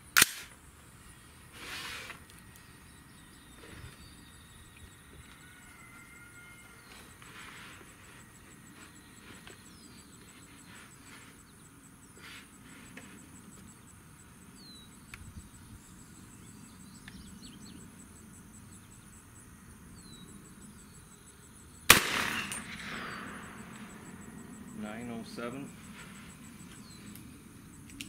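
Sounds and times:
insects buzzing: 0.0 - 28.0
rifle shot: 0.2 - 0.6, 21.9 - 24.8.

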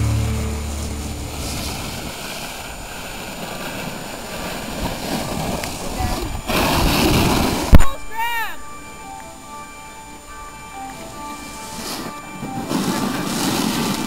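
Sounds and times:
loud rush of noise: 0.0 - 7.8
wind buffeting microphone: 0.0 - 7.9.

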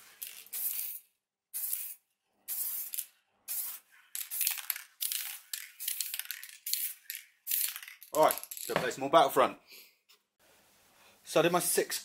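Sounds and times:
spray paint can hissing: 0.1 - 8.0.

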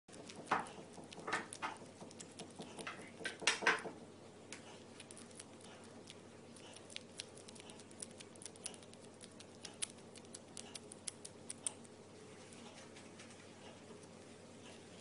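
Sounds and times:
bat chewing clicks and smacks: 0.1 - 3.7, 4.6 - 12.0.

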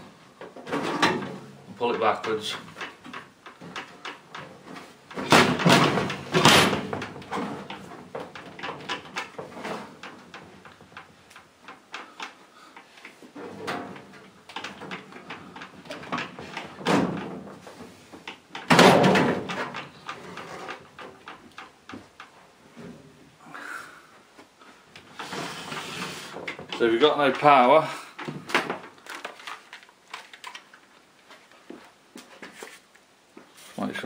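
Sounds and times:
small clicks and knocks: 0.4 - 22.6, 24.4 - 33.1
metal scraping and clattering: 25.1 - 27.9.

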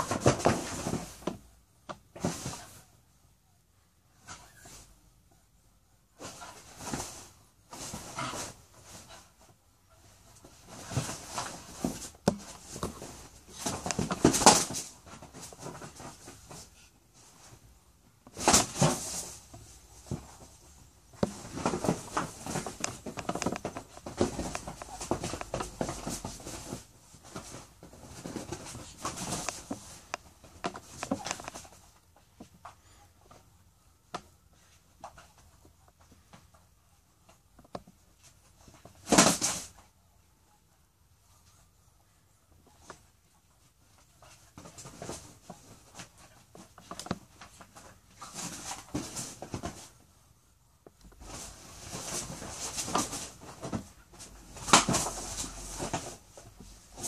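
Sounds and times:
dog and rooster scuffling: 6.2 - 16.8.

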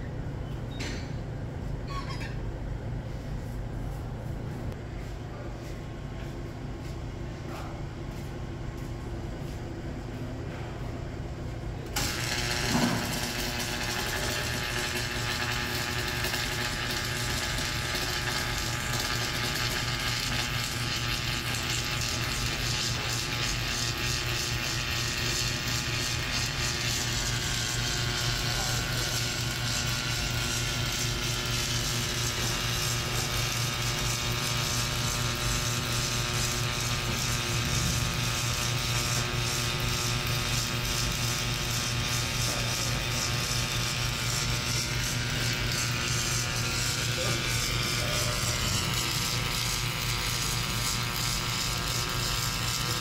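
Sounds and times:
welding machine humming and hissing: 6.2 - 53.0
welding arc striking crack: 11.9 - 53.0.

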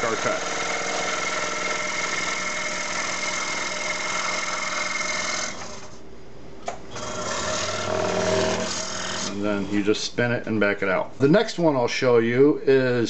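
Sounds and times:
scroll saw cutting wood: 0.0 - 6.0, 6.9 - 9.5.

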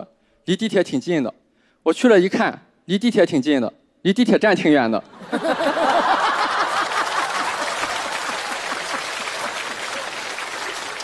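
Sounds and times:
audience laughing: 5.1 - 10.8
audience applauding: 5.4 - 11.0.

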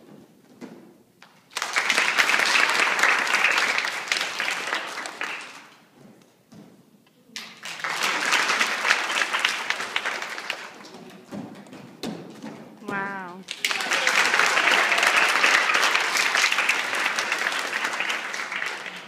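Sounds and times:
children clapping: 1.2 - 5.8, 7.4 - 11.3, 12.9 - 19.0.

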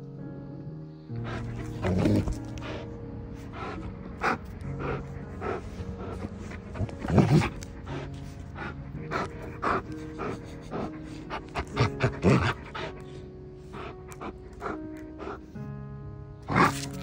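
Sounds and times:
background music: 0.0 - 17.0
dog panting and huffing: 1.2 - 15.7, 16.4 - 17.0.

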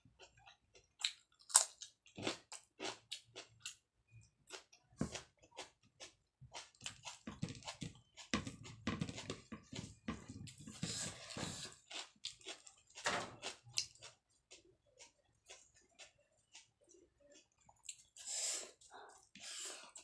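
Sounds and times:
fingers mixing food on plate: 6.6 - 18.1.

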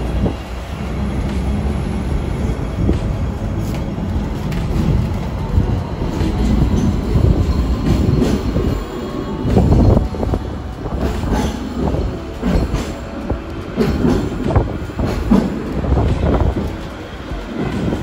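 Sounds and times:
tram rumbling on track: 0.0 - 18.0.

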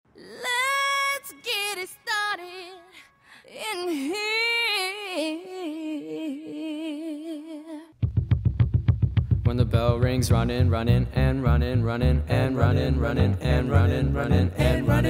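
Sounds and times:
woman singing unaccompanied: 0.2 - 8.0.

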